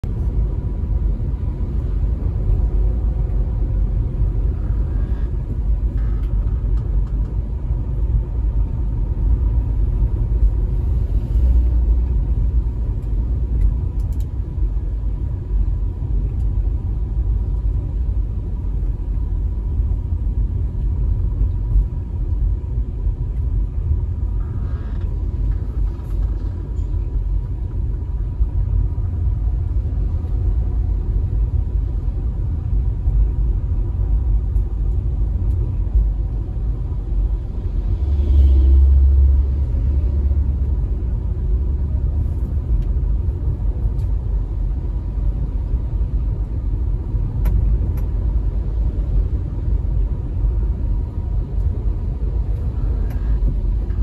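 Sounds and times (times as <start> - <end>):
car driving on road: 0.0 - 54.0.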